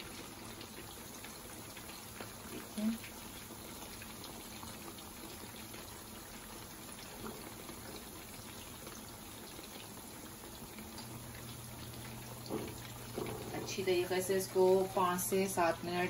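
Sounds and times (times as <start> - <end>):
chicken sizzling in hot oil: 0.0 - 16.0
oil crackling: 6.6 - 15.9.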